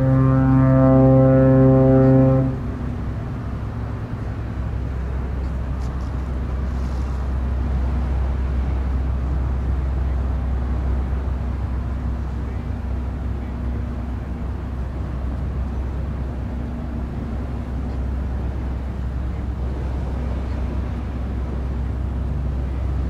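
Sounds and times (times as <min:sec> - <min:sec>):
deep horn-like drone: 0:00.0 - 0:03.1
low rumble over open water: 0:00.0 - 0:23.0.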